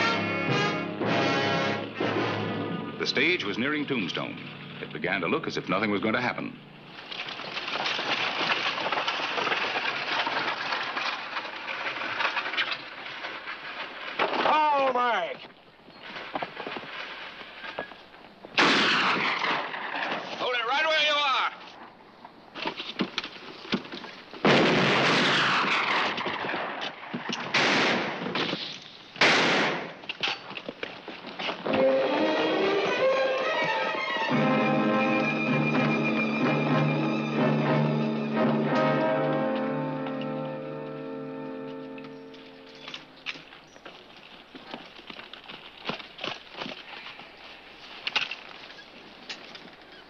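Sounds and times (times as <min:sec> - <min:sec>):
rattling wheels and harness: 0:06.6 - 0:15.0, 0:30.0 - 0:34.4, 0:38.0 - 0:50.0
clatter of horse hooves: 0:06.9 - 0:14.6, 0:15.4 - 0:18.5, 0:21.6 - 0:24.4, 0:25.6 - 0:27.6, 0:30.0 - 0:32.2, 0:41.6 - 0:50.0
gunshots with echo: 0:27.5 - 0:28.3, 0:29.2 - 0:30.0.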